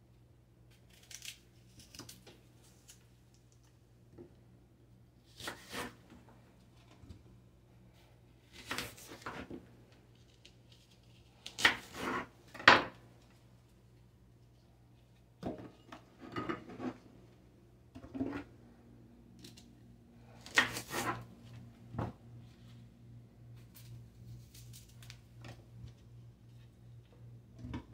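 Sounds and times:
knife cutting on wooden board: 5.4s - 6.0s, 11.6s - 12.3s, 20.5s - 21.2s
faint low hum: 12.3s - 27.9s.

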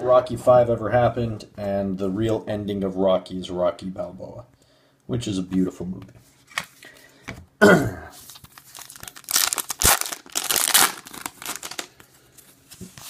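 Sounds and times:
wrapper tearing and crinkling: 8.2s - 12.0s.

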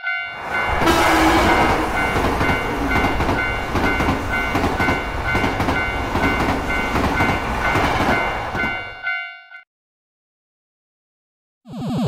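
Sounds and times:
railroad crossing bell dinging: 0.0s - 9.7s
train wheels rumbling: 0.3s - 9.1s.

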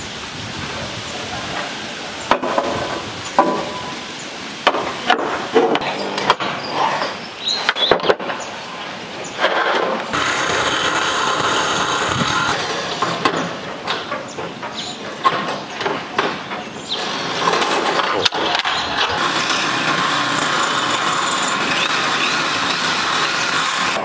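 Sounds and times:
metal roof sheets clattering: 9.4s - 24.0s.

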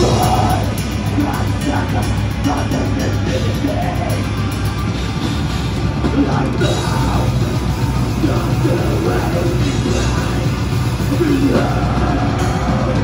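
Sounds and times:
harsh shouted vocals: 0.0s - 4.6s, 6.0s - 13.0s
distorted electric guitars: 0.0s - 13.0s
drum kit: 0.0s - 13.0s.

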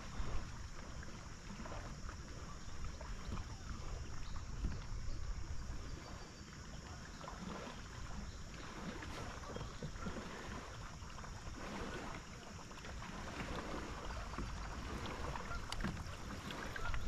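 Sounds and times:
water lapping against kayak hull: 0.0s - 17.0s
wind rumble on microphone: 0.0s - 17.0s.

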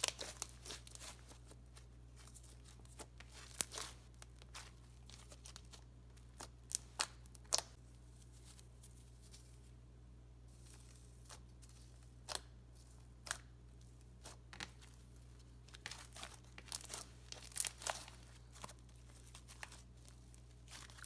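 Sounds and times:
slime sticky crackles: 0.0s - 7.8s, 10.5s - 21.0s.

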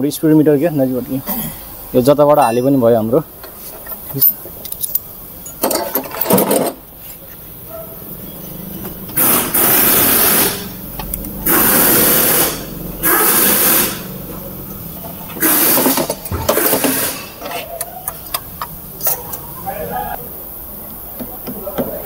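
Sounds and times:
loud hissing bursts: 9.1s - 14.6s, 15.3s - 17.6s.

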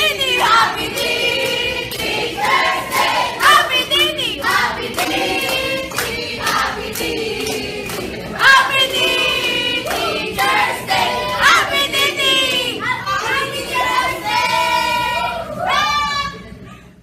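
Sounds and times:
group singing and shouting: 0.0s - 16.5s
hand clapping: 0.4s - 10.6s.

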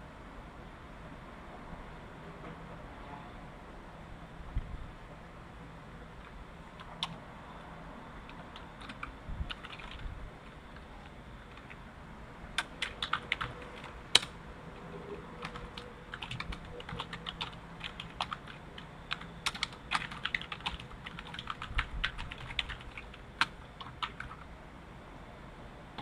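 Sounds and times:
computer keyboard key clicks: 8.3s - 10.0s, 12.6s - 14.3s, 15.4s - 24.4s.

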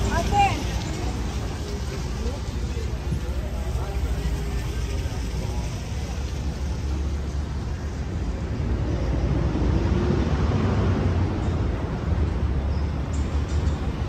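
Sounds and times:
low traffic rumble: 0.0s - 14.0s
vehicle passing close by: 8.7s - 12.2s.

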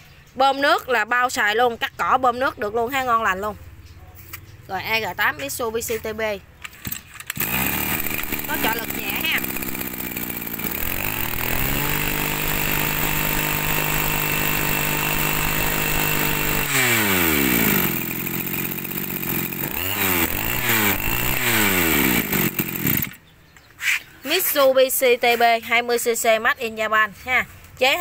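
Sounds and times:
brush-cutter engine revving: 6.6s - 23.2s.

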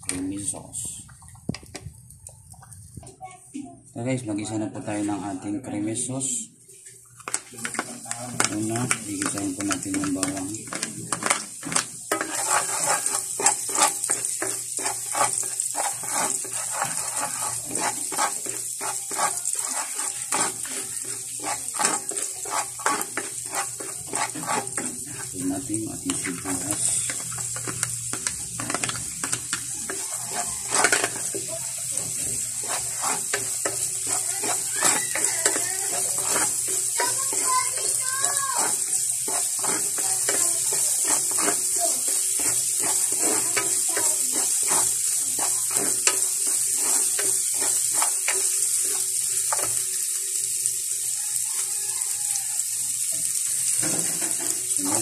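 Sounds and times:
garlic and onion sizzling in oil: 0.0s - 55.0s
ladle scraping and knocking pan: 7.3s - 49.8s, 53.7s - 54.8s.

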